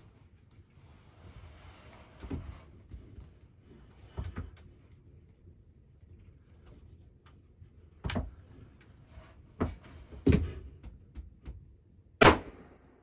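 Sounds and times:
loud gunshot with echo: 12.2s - 12.8s.

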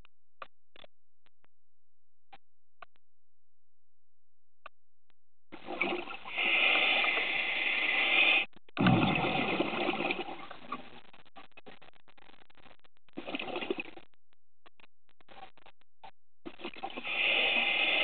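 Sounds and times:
exhaled bubbles gurgling: 5.6s - 11.0s, 13.2s - 14.0s
scuba regulator inhale hiss: 6.3s - 8.5s, 17.0s - 18.0s.

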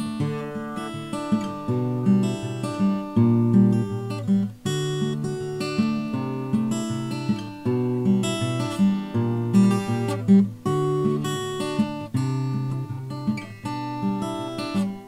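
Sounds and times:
acoustic guitar plucking and strumming: 0.0s - 15.0s.

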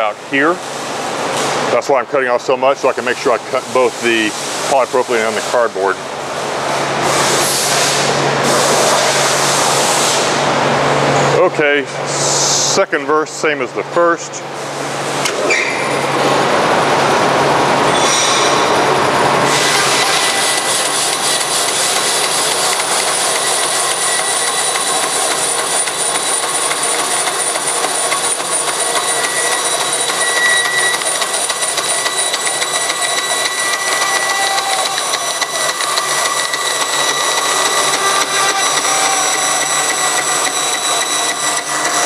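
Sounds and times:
bandsaw starting up: 19.4s - 42.0s
bandsaw cutting plastic film: 19.5s - 42.0s.

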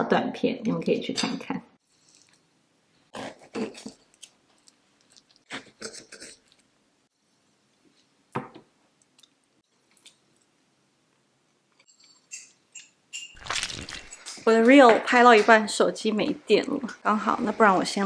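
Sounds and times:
soft chewing: 1.9s - 2.5s, 3.4s - 6.8s, 9.0s - 11.6s.

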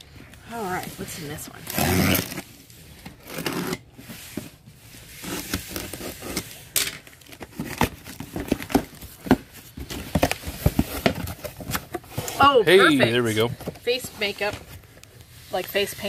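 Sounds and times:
box cutter slicing packing tape: 1.6s - 2.5s, 3.2s - 3.8s.

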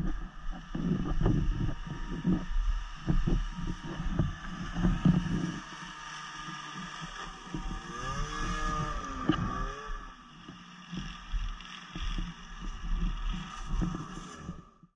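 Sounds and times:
snowmobile engine passing: 7.3s - 10.2s.

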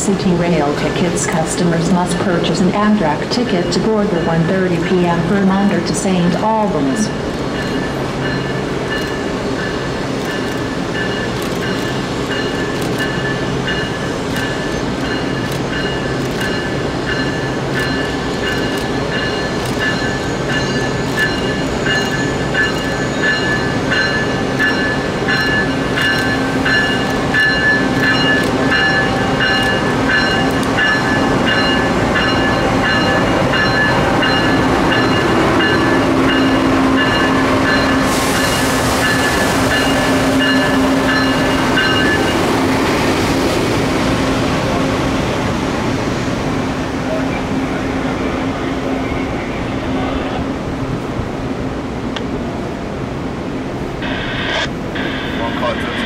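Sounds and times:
train wheels clicking over joints: 7.2s - 42.7s
steady high whine: 53.6s - 56.0s.

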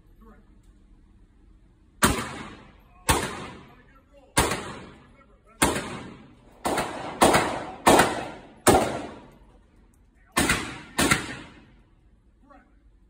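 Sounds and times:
gunshots echoing indoors: 2.0s - 9.6s, 10.2s - 12.1s.

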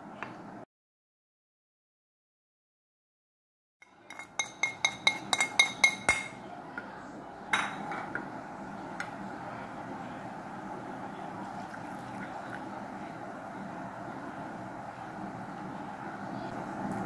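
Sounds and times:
metal spoon clinking on dish: 3.9s - 6.4s, 7.6s - 8.2s
stirring dry flour in glass dish: 4.0s - 6.4s.

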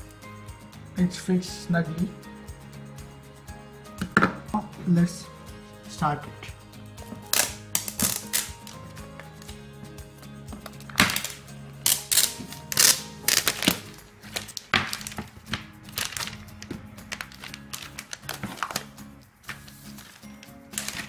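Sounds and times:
background music: 0.0s - 21.0s
plastic film crinkling: 7.2s - 9.5s, 10.6s - 21.0s.

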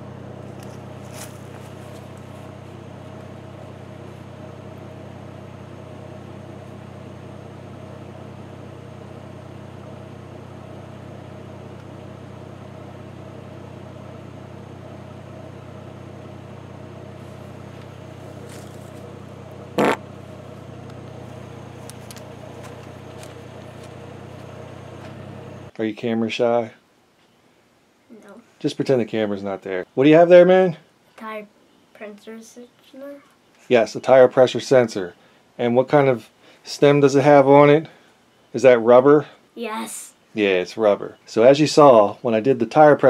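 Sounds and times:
engine idling hum: 0.0s - 25.7s
engine blip: 17.5s - 25.7s.

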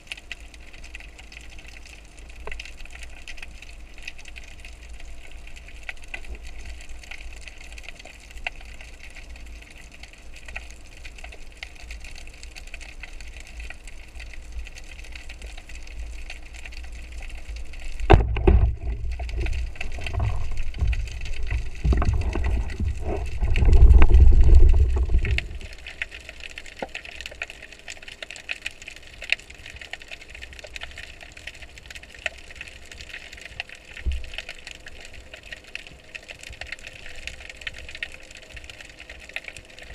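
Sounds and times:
low churning of water: 0.0s - 39.9s
underwater hiss and crackling: 0.0s - 39.9s
thumps against microphone: 18.1s - 25.5s.

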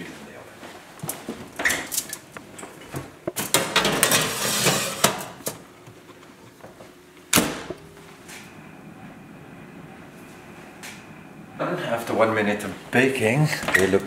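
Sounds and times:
metal baking tray clattering: 3.4s - 5.4s.

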